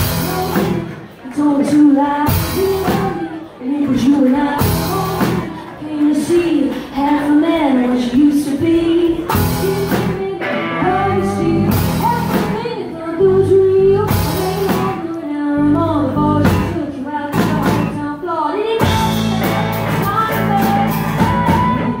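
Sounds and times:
electric bass: 0.0 - 0.9, 9.3 - 12.6, 15.6 - 16.8, 18.8 - 22.0
drum kit: 0.0 - 1.2, 2.2 - 6.9, 8.5 - 12.9, 13.8 - 15.1, 16.2 - 18.1, 18.8 - 22.0
acoustic guitar: 0.0 - 22.0
woman singing: 0.0 - 22.0.

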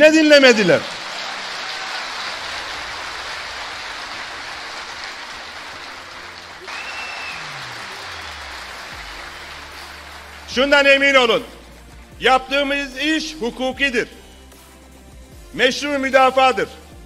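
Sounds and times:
large indoor crowd applauding: 0.0 - 10.9.

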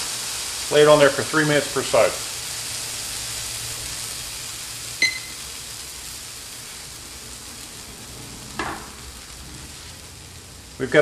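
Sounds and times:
sandwich sizzling on griddle: 0.0 - 11.0.

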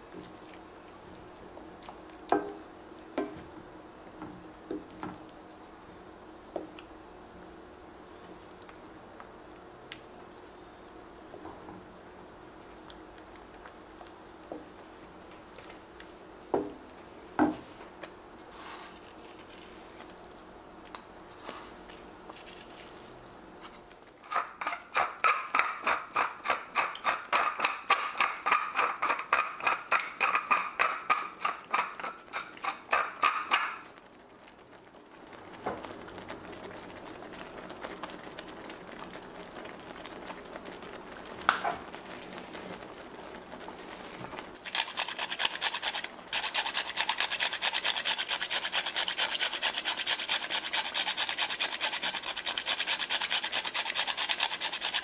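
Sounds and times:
spice grinder crunching: 44.6 - 55.0
metal grater scraping: 44.7 - 55.0.

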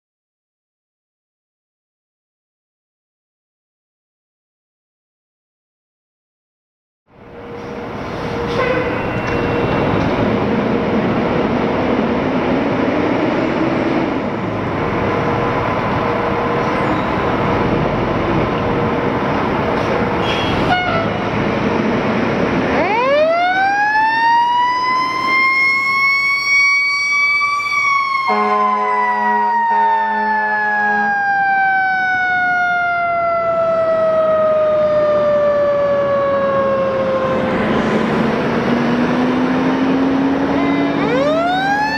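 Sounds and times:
diesel engines rumbling: 7.1 - 41.9
air horn blasts: 8.3 - 9.7, 20.2 - 21.2, 28.3 - 31.2.

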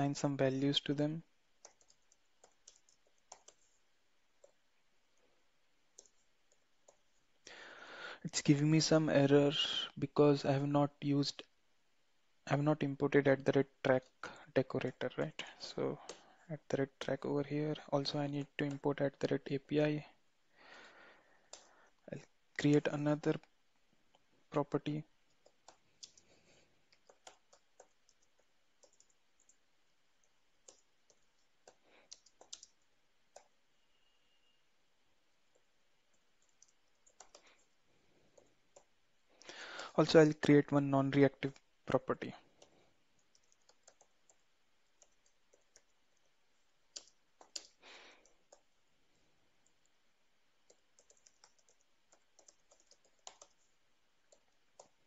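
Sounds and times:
faint computer keyboard typing: 0.0 - 7.6, 12.6 - 20.0, 20.7 - 34.6, 35.2 - 55.0.

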